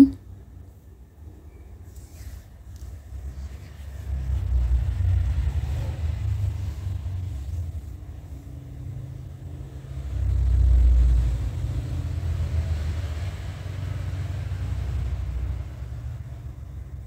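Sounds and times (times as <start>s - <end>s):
low rumble: 2.8s - 13.0s.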